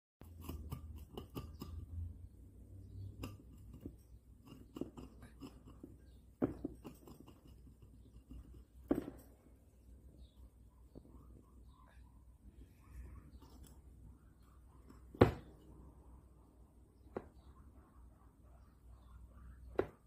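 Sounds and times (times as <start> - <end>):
guinea pig gnawing wood: 0.2 - 2.0.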